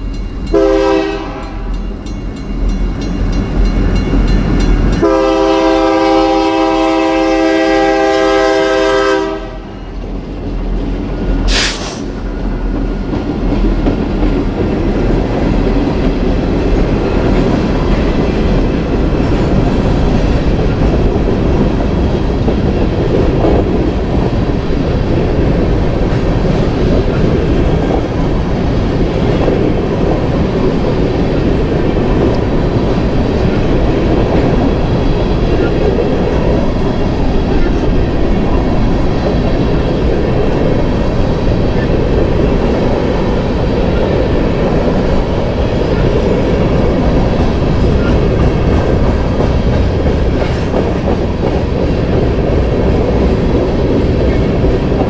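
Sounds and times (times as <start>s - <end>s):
train rumble: 0.0s - 55.0s
train horn blast: 0.5s - 1.7s, 5.0s - 9.8s
wheels clattering on rail: 9.7s - 55.0s.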